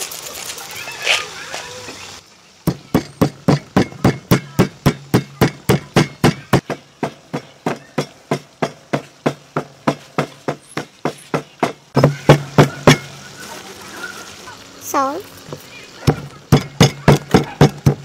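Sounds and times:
pestle pounding in stone mortar: 2.6 - 13.1, 16.0 - 18.0.

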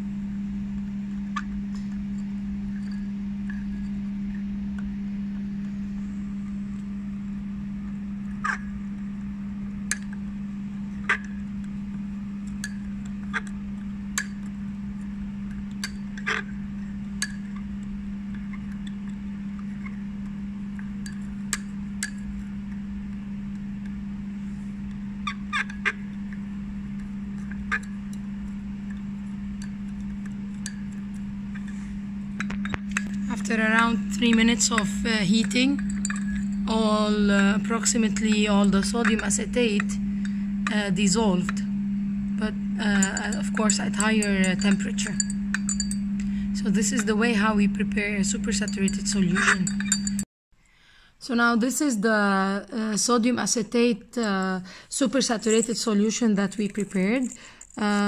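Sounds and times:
steady low hum: 0.0 - 58.0
glass rod clinking in beaker: 12.5 - 13.5, 15.5 - 17.6, 21.0 - 22.3, 32.4 - 41.6, 42.8 - 50.2.

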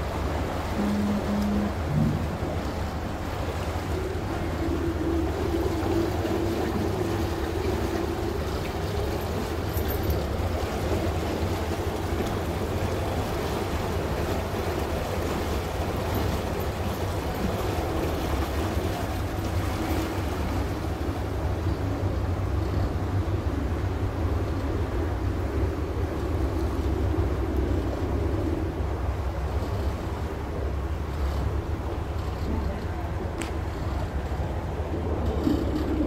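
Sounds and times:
ferry engine drone: 0.0 - 36.0
water washing around hull: 0.0 - 36.0.

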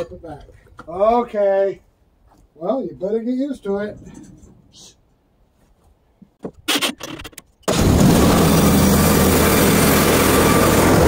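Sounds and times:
sawmill gas engine running: 7.7 - 11.0.

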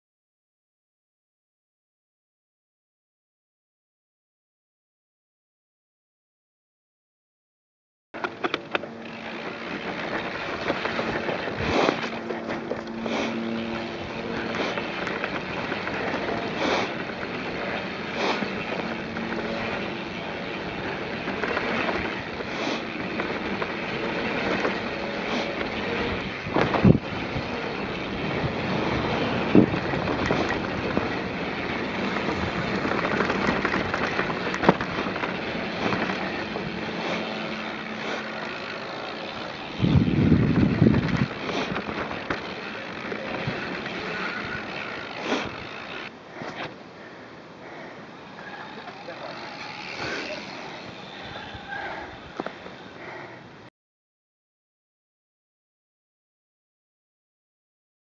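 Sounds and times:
bike rattling and clicking: 8.2 - 53.3
tyre noise on dirt and gravel: 8.2 - 53.4
wind noise on microphone: 21.8 - 37.0, 39.6 - 42.4.

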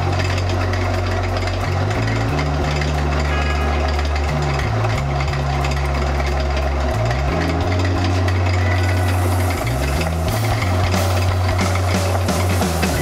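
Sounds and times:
background music with deep bass: 0.0 - 13.0
busy dense beat: 8.5 - 13.0
bright hiss: 8.8 - 13.0.

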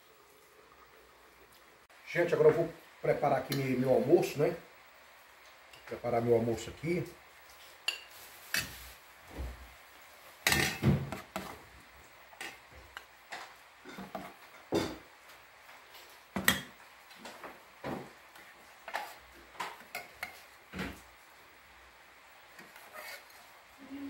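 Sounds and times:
spoons clinking against metal pots: 7.8 - 8.8, 10.4 - 11.5.

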